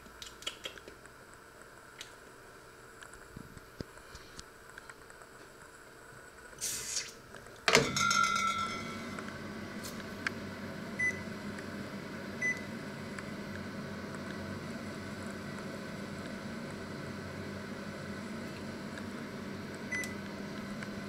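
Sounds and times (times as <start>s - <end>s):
microwave humming: 4.6s - 21.0s.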